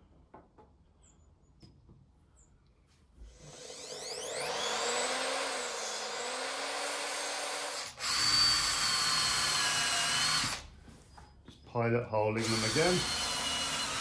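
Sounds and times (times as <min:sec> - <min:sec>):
power drill boring into wood: 0:03.3 - 0:10.7, 0:12.4 - 0:14.0.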